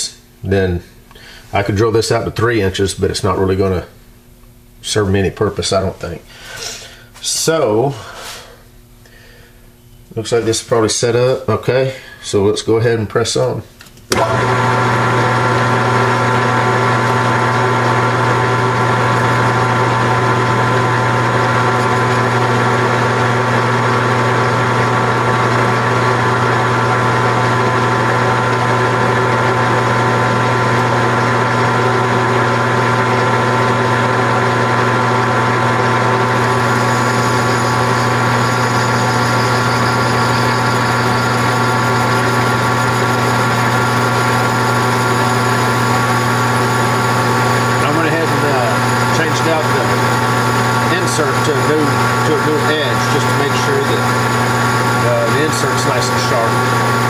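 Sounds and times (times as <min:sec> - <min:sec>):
lathe humming and whining: 0:14.1 - 0:57.0
cutting tool hiss: 0:36.3 - 0:43.0.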